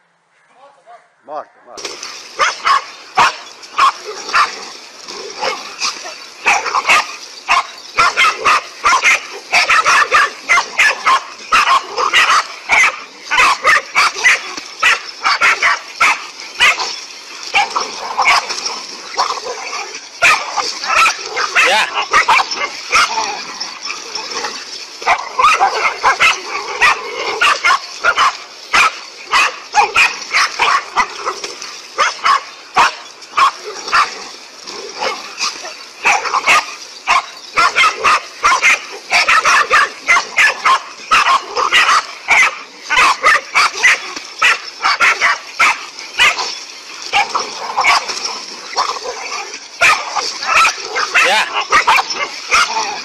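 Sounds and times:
dogs barking: 0:01.8 - 0:53.0.

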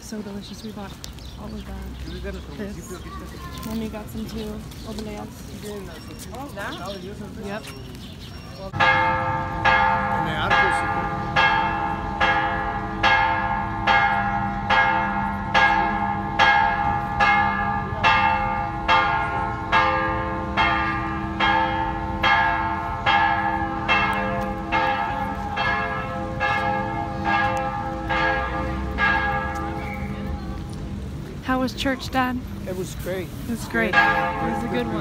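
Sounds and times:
church bell ringing: 0:08.8 - 0:31.0, 0:33.6 - 0:35.0.

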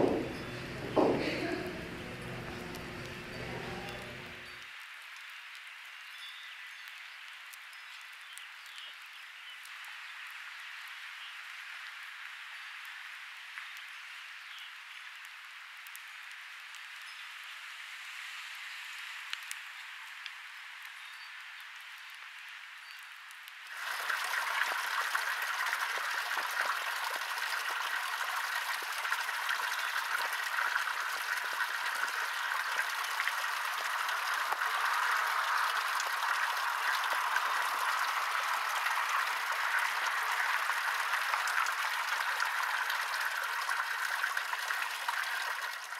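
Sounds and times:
steady hiss with fine crackling: 0:00.0 - 0:29.2, 0:29.8 - 0:43.4.

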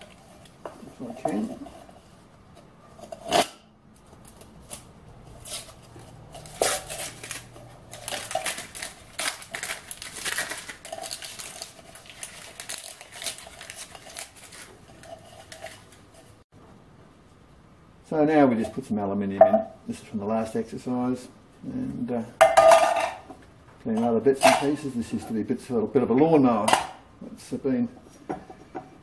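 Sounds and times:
paper label tearing and crinkling: 0:04.6 - 0:14.8.

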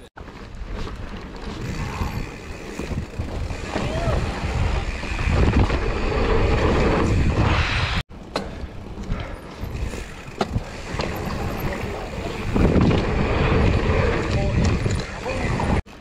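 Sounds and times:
tyres rolling on dirt trail: 0:00.0 - 0:16.0
bike clicks and knocks: 0:00.2 - 0:07.3, 0:08.2 - 0:16.0
wind buffeting microphone: 0:00.2 - 0:15.8.

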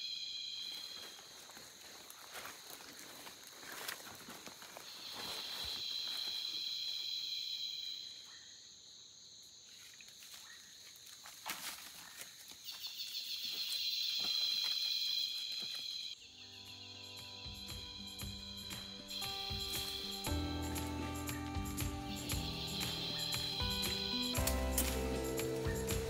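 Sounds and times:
insects buzzing in a pulsing drone: 0:00.0 - 0:26.0
music: 0:16.4 - 0:26.0
leaf litter rustling: 0:22.2 - 0:26.0.

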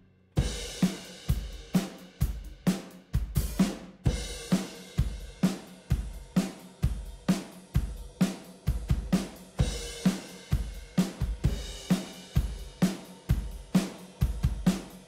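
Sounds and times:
rock drum kit playing: 0:00.4 - 0:15.0.

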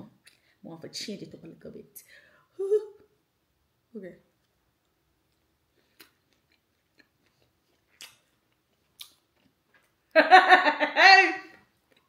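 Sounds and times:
woman chewing food: 0:04.4 - 0:10.1, 0:11.7 - 0:12.0.

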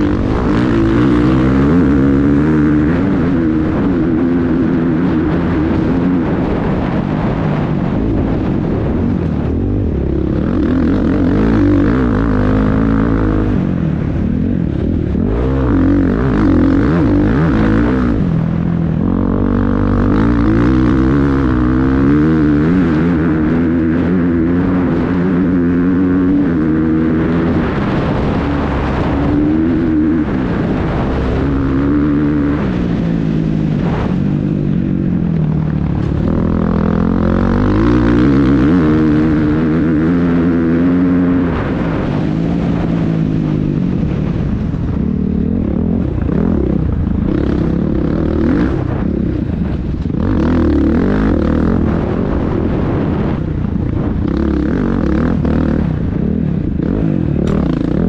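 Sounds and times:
dirt bike engine revving: 0:00.0 - 0:58.0
wind noise on microphone: 0:00.0 - 0:58.0.

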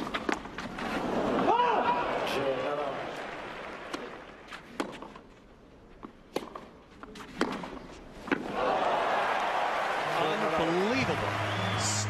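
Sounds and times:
tennis ball bouncing: 0:06.0 - 0:08.5
hushed stadium crowd: 0:08.4 - 0:12.0.

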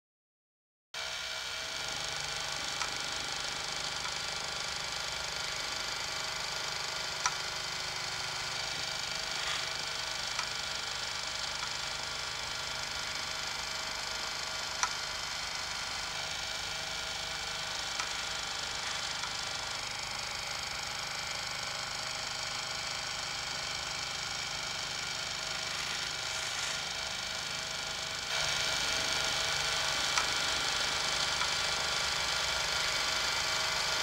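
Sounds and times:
motors whining: 0:07.2 - 0:10.5, 0:25.0 - 0:31.8.

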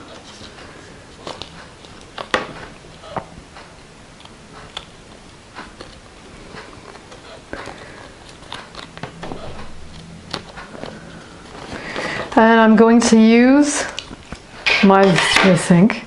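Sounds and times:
scissors snipping paper: 0:00.1 - 0:11.3.

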